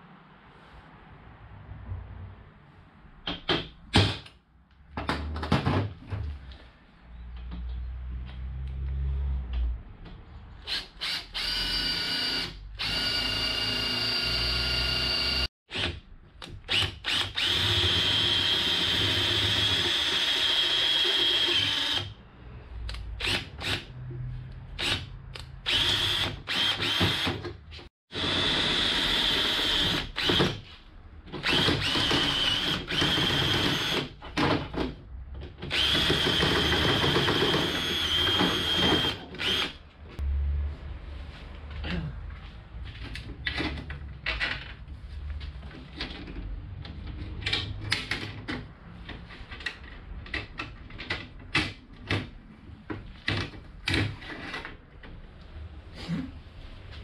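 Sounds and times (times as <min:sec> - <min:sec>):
cordless drill whining: 0:10.7 - 0:15.5, 0:17.0 - 0:22.1, 0:25.7 - 0:27.3, 0:31.4 - 0:34.0, 0:35.7 - 0:39.8.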